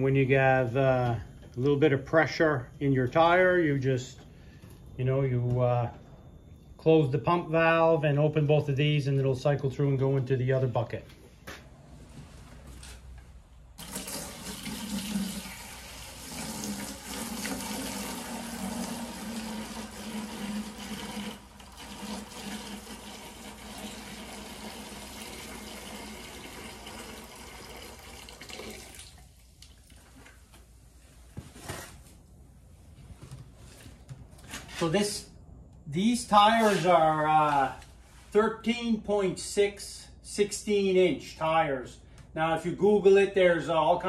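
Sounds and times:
liquid pouring into plastic bucket: 13.8s - 30.4s.

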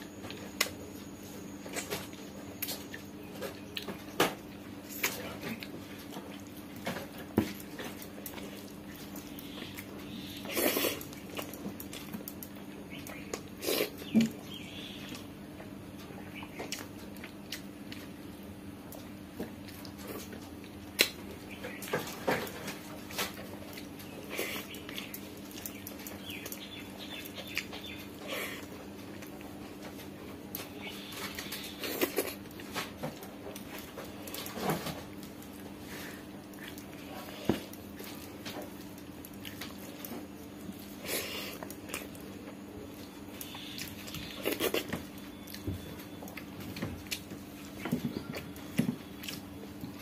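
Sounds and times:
steady low hum: 0.0s - 50.0s
chewing and lip smacks: 1.7s - 6.6s, 16.1s - 21.9s, 23.6s - 29.8s, 35.1s - 50.0s.

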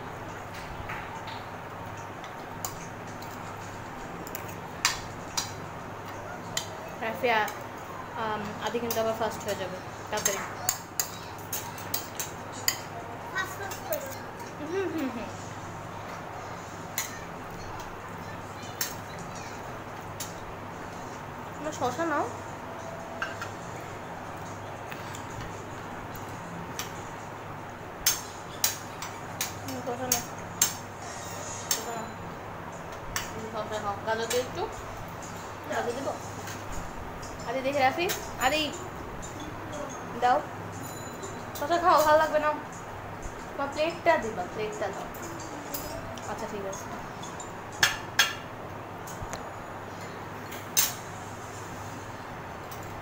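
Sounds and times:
steady background hum: 0.0s - 53.0s
cutlery clicking on china plates: 4.2s - 6.7s, 10.2s - 12.9s, 16.9s - 18.0s, 18.7s - 19.2s, 28.0s - 30.9s, 38.0s - 38.3s, 45.2s - 48.5s
cutlery clinking on plates: 10.2s - 12.9s, 23.1s - 23.7s, 45.2s - 49.3s, 49.9s - 51.1s.

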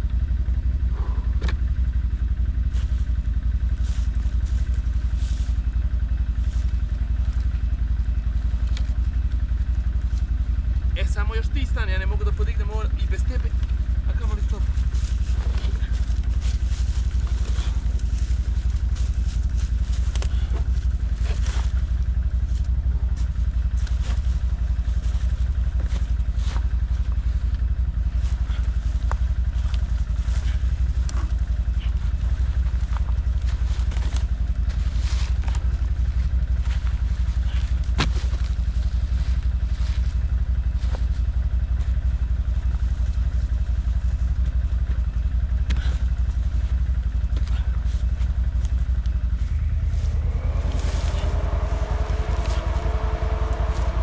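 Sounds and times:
atv engine idling: 0.0s - 54.0s
wood and branches clattering: 13.3s - 54.0s.

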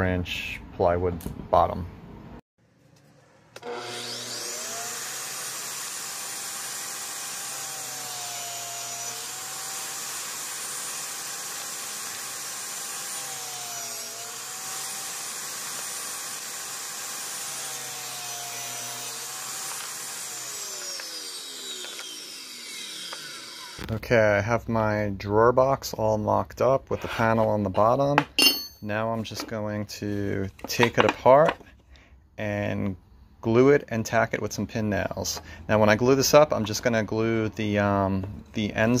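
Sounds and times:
table saw motor whining: 3.4s - 23.8s.

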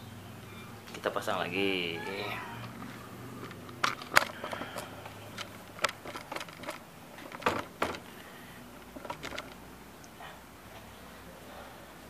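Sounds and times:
hard plastic clicks and knocks: 2.7s - 8.1s, 8.8s - 9.6s.

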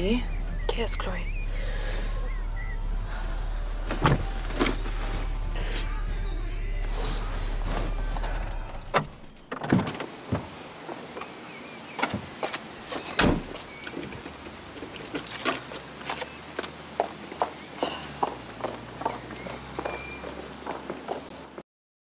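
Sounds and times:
car engine running: 0.0s - 9.5s, 13.7s - 21.6s
car door opening and shutting: 2.9s - 5.8s, 6.8s - 10.6s, 12.0s - 16.4s.

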